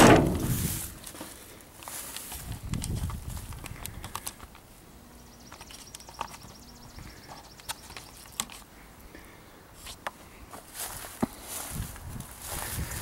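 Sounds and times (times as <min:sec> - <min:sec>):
camera handling noise: 0:02.1 - 0:04.7.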